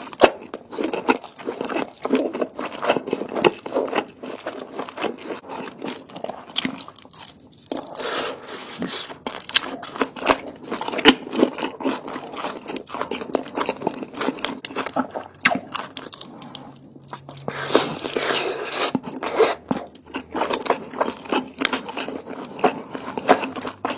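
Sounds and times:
crunching bites of taco: 0:00.0 - 0:08.0
wet chewing mouth sounds: 0:00.0 - 0:23.9.

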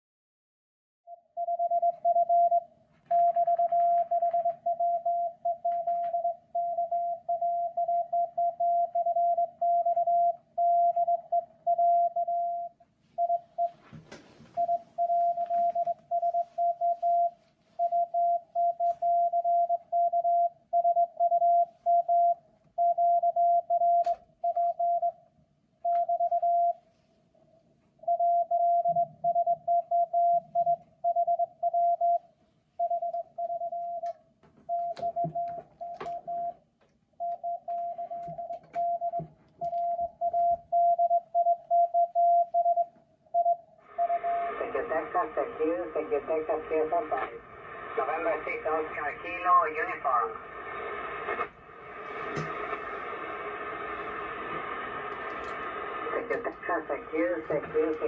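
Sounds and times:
morse code tone: 0:14.6 - 0:25.1, 0:34.7 - 0:36.6, 0:37.2 - 0:50.4, 0:55.4 - 0:58.0
burst of radio noise: 0:43.9 - 0:58.0.

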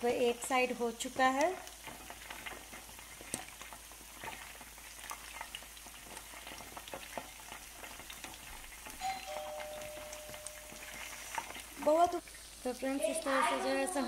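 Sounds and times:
chicken frying in oil: 0:00.0 - 0:14.0.

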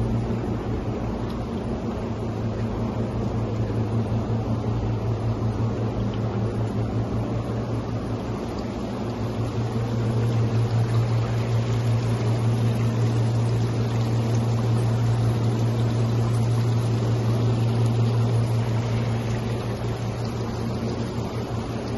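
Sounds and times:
low mechanical hum: 0:00.0 - 0:21.9.

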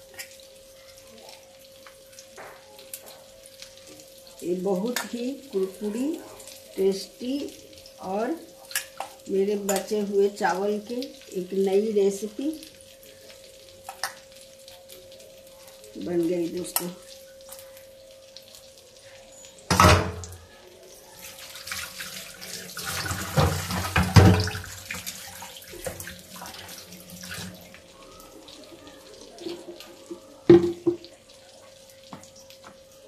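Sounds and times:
tap running into a sink: 0:19.7 - 0:20.4, 0:22.8 - 0:26.5, 0:30.1 - 0:31.1.

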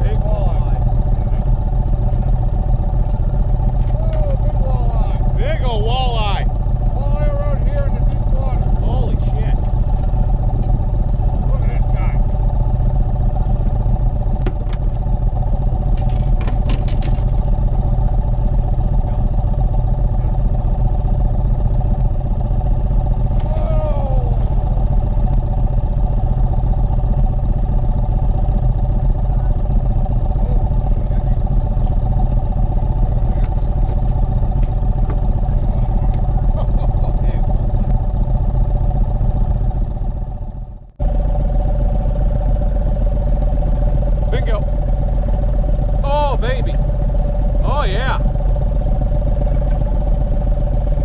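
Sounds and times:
outboard motor running: 0:00.0 - 0:51.0.

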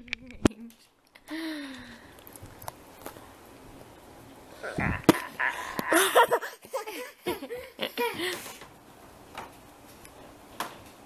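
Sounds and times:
person giggling: 0:04.6 - 0:08.6.

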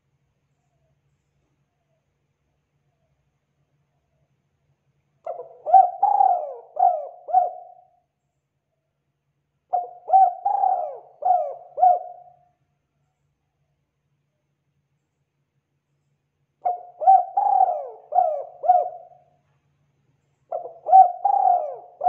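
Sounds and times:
dove cooing: 0:05.2 - 0:08.0, 0:09.7 - 0:12.4, 0:16.6 - 0:19.3, 0:20.5 - 0:22.0.

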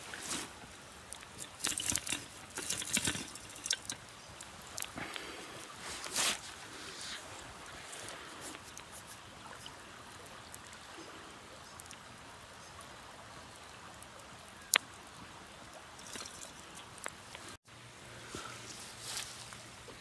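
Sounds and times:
campfire crackling: 0:00.0 - 0:20.0
river flowing: 0:00.0 - 0:20.0.

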